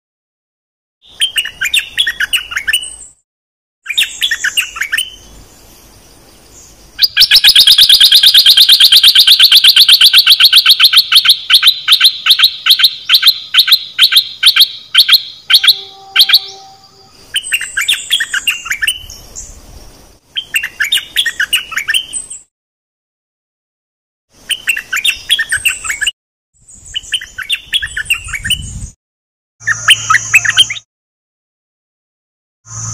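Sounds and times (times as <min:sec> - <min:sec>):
bird singing warbled phrases: 0:01.0 - 0:03.2, 0:03.9 - 0:22.5, 0:24.4 - 0:29.0, 0:29.6 - 0:30.9
loud repeated bird notes: 0:01.0 - 0:03.2, 0:07.0 - 0:19.5, 0:29.6 - 0:30.9.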